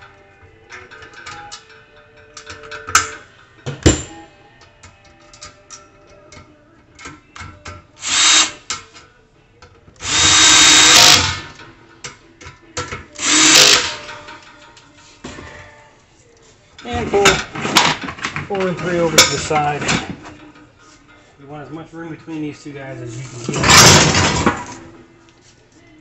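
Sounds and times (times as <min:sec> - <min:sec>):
metal parts clicking and knocking: 0:00.6 - 0:04.1
power drill driving screws: 0:08.0 - 0:08.6, 0:10.0 - 0:11.4, 0:13.2 - 0:14.1.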